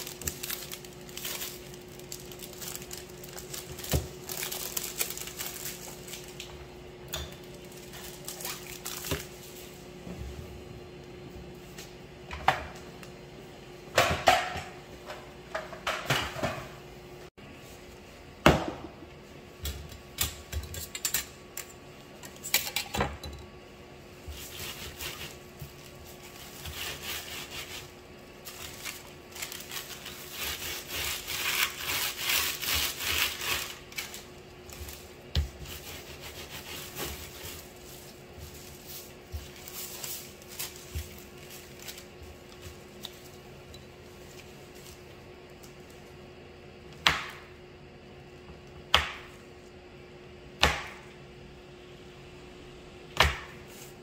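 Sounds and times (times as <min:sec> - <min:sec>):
parchment paper rustling: 0:00.0 - 0:06.6, 0:24.3 - 0:46.0.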